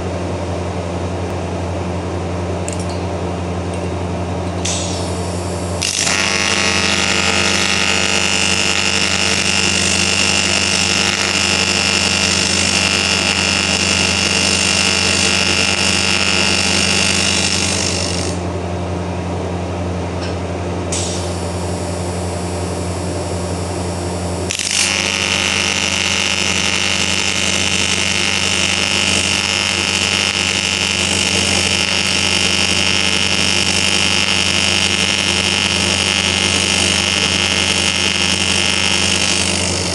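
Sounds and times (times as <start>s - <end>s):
welder hum: 4.6s - 18.5s, 20.9s - 39.9s
welding arc buzzing hiss: 4.6s - 18.5s, 20.9s - 39.9s.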